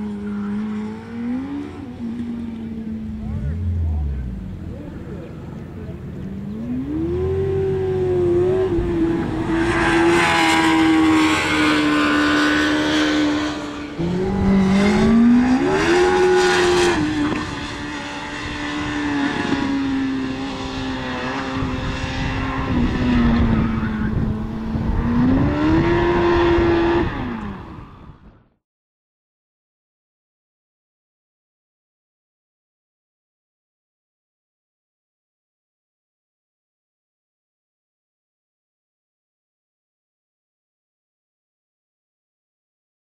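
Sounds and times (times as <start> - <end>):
race car engine at high revs: 0.0 - 28.4.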